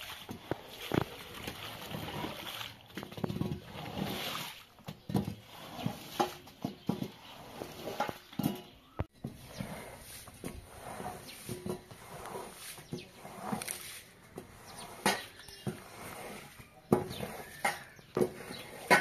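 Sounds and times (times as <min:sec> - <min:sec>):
squeegee swishing water on carpet: 0:00.0 - 0:08.0, 0:09.2 - 0:19.0.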